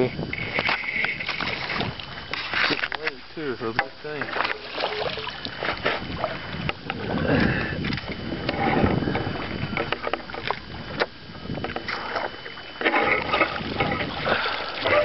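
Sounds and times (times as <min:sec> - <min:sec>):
wind noise: 0:00.0 - 0:02.9, 0:04.9 - 0:15.0
water noise: 0:00.0 - 0:15.0
fishing rod and reel clicks: 0:02.3 - 0:04.6, 0:07.8 - 0:15.0.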